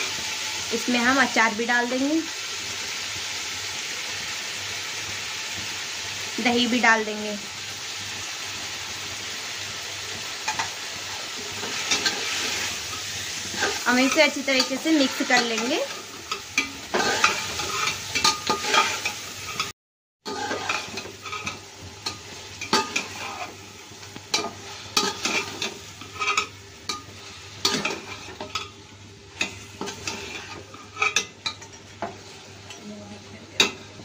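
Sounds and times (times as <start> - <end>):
frying sizzle: 0.0 - 34.0
metal spoon scraping a pot: 11.6 - 19.7, 20.3 - 23.6, 24.3 - 28.7, 29.4 - 32.8.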